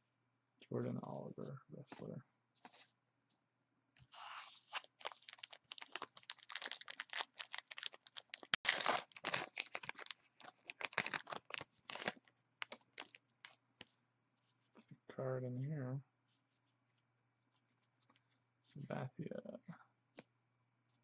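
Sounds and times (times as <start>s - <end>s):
foil wrapper tearing and crinkling: 4.2s - 13.6s.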